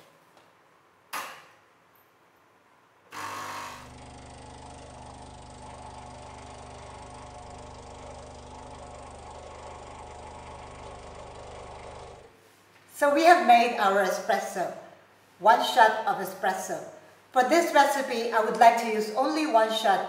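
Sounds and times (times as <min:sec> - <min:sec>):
espresso machine pump humming: 0:03.1 - 0:12.3.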